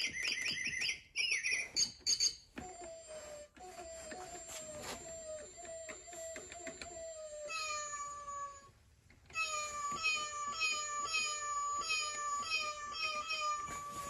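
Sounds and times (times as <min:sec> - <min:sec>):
toy robot cat meowing: 0:06.6 - 0:14.0.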